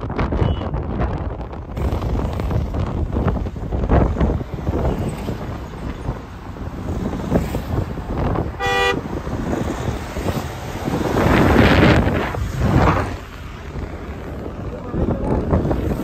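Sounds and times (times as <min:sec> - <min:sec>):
road noise from moving car: 0:00.0 - 0:16.0
wind buffeting microphone: 0:00.0 - 0:16.0
car horn toot: 0:00.3 - 0:00.8, 0:08.6 - 0:09.1.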